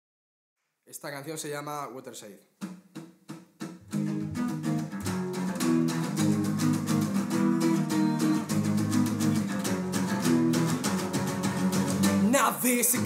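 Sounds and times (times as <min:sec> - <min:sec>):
acoustic guitars strumming chords: 0:02.6 - 0:13.0.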